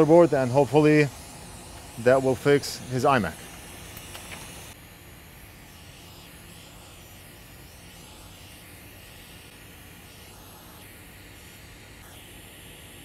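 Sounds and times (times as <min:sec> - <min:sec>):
hot air blower hissing: 0:00.0 - 0:13.0.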